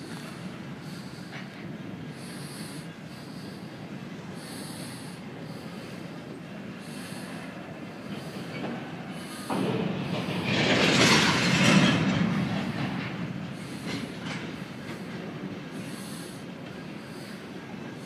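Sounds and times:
freight car wheels clattering on rail: 8.1 - 17.5.

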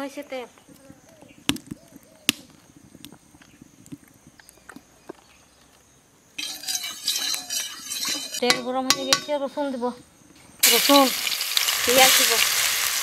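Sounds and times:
hot oil crackling and sizzling: 6.4 - 8.4, 10.6 - 13.0.

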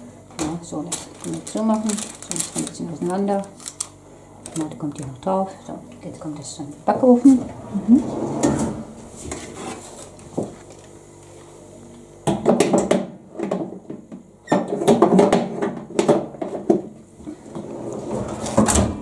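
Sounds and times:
metal tray scraping oven rails: 7.3 - 9.9.

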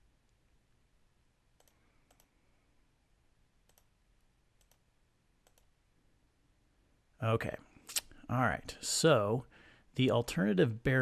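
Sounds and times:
computer mouse clicks: 1.6 - 2.4, 3.6 - 3.9, 4.6 - 4.8, 5.4 - 5.7.

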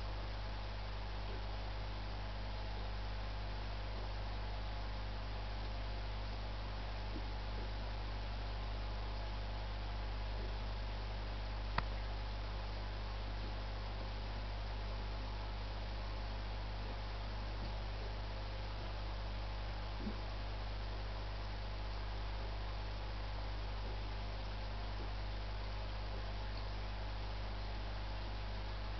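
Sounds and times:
low electrical hum: 0.0 - 28.9
faint tick: 11.7 - 12.0.

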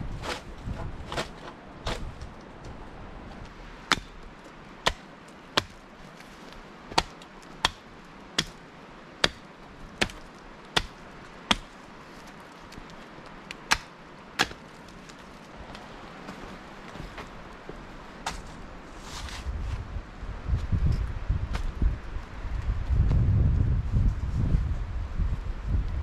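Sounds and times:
tool striking wood: 3.9 - 4.1.

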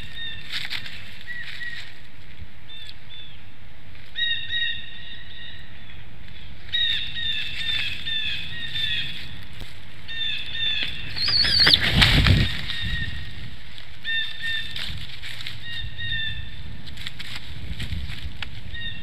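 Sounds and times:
eagles calling: 4.2 - 14.8
rush of wingbeats: 10.7 - 13.5.

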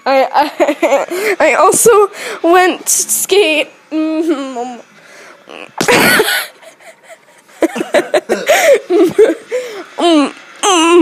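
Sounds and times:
girl laughing and vocalizing: 5.5 - 11.0.

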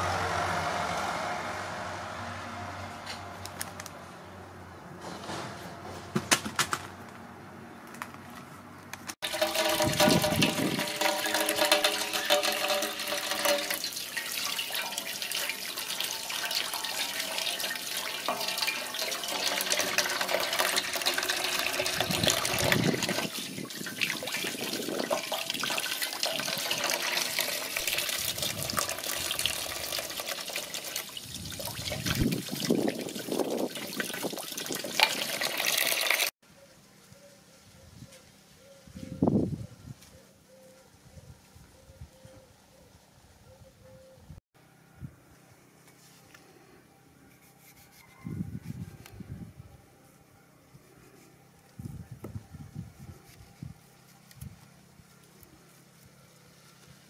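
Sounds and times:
running water pouring: 9.2 - 36.3
water splashing into a basin: 9.2 - 36.3.

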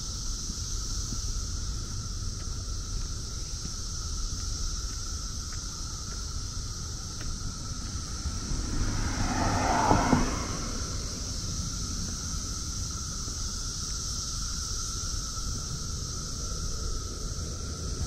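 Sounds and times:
droning cicada chorus: 0.0 - 18.0
car passing by: 6.8 - 13.4.

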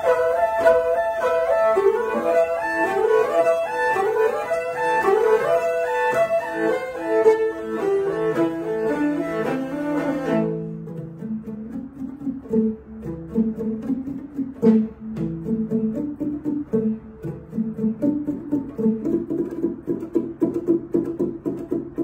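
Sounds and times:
bowed fiddles playing fast tune: 0.0 - 10.7.

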